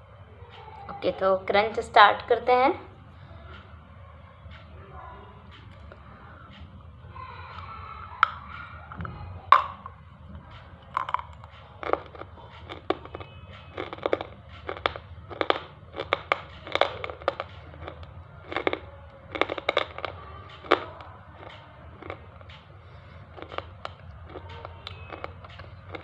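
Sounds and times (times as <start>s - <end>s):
crunching slate in mouth: 10.9s - 22.6s, 23.2s - 26.0s.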